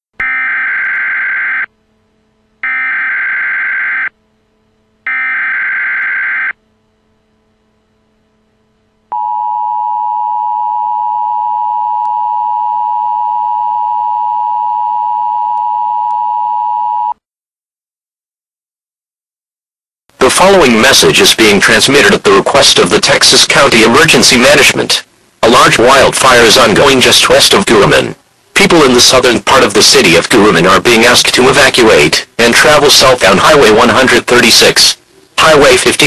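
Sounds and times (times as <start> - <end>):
steady attention tone: 0.2 - 17.2.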